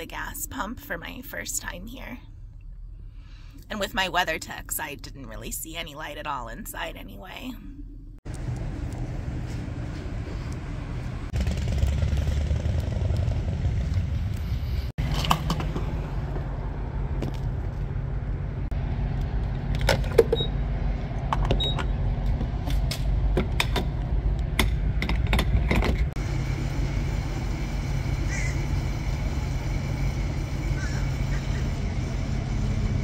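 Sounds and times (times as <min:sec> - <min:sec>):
road traffic rumble: 0:08.2 - 0:33.0
sharp clicks and knocks: 0:21.3 - 0:26.2.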